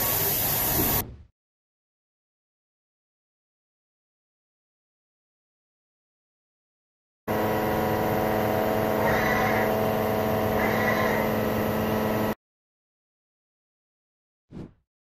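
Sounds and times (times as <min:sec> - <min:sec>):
high machine whirring: 0:07.3 - 0:12.4
machine hum: 0:07.3 - 0:12.4.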